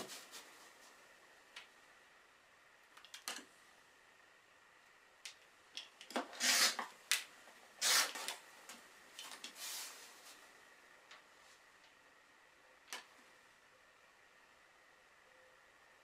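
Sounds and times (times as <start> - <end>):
rotary cutter slicing fabric: 6.2 - 6.9, 7.8 - 8.4.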